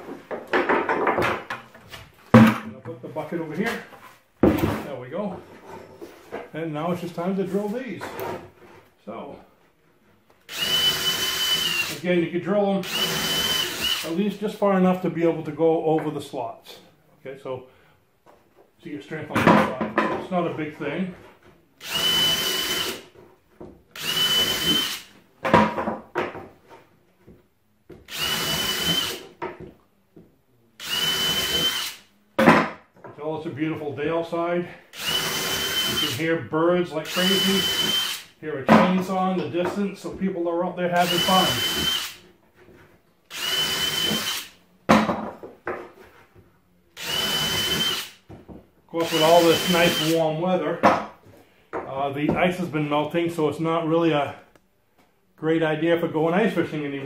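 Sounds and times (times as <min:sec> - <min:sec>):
wood pieces knocking: 0:00.2 - 0:01.8
cordless drill whining: 0:10.5 - 0:12.0, 0:12.8 - 0:14.2, 0:21.8 - 0:23.0, 0:24.0 - 0:25.1, 0:28.1 - 0:29.2, 0:30.8 - 0:32.0, 0:34.9 - 0:36.2, 0:37.0 - 0:38.3, 0:41.0 - 0:42.2, 0:43.3 - 0:44.6, 0:47.0 - 0:48.2, 0:49.0 - 0:50.2.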